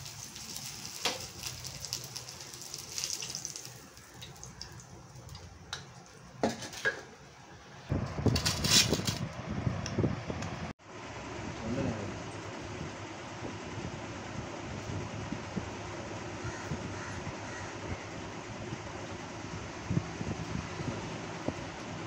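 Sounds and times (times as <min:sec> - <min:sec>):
fish sizzling in hot oil: 0:00.0 - 0:05.5
rustling clatter: 0:08.1 - 0:09.2.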